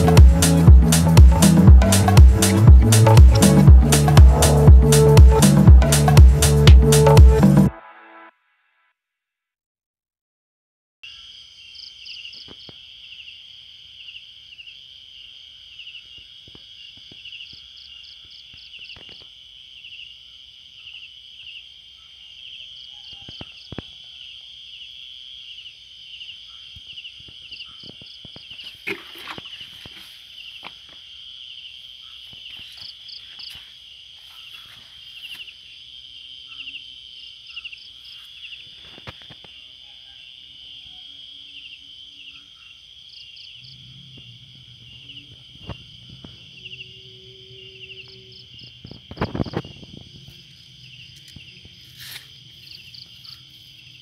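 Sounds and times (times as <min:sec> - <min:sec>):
crickets chirping: 0:11.0 - 0:54.0
insect rapid pulses: 0:11.0 - 0:54.0.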